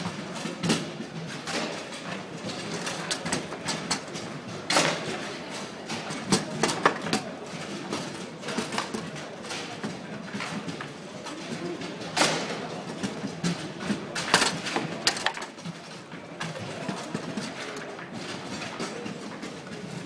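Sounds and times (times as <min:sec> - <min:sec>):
background murmur: 0:00.0 - 0:20.0
foosball knocks and clacks: 0:13.2 - 0:15.7.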